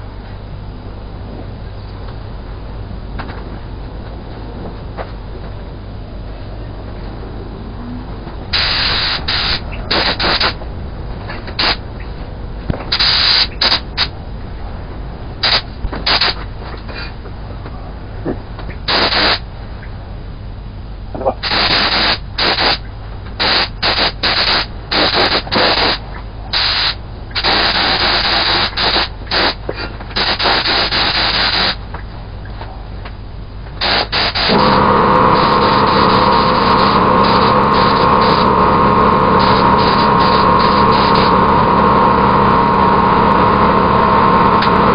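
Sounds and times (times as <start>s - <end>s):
air compressor motor drone: 0.0s - 44.9s
air spray gun hissing: 8.5s - 10.6s, 11.5s - 11.8s, 12.9s - 14.1s, 15.4s - 16.4s, 18.8s - 19.4s, 21.4s - 22.8s, 23.4s - 31.8s, 33.8s - 44.9s.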